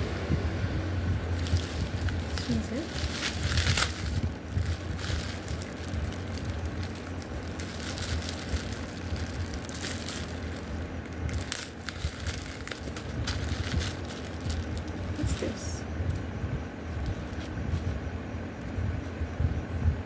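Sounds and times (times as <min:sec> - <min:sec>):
steady low hum: 0:00.0 - 0:20.0
plastic wrapping crinkling: 0:01.3 - 0:15.6.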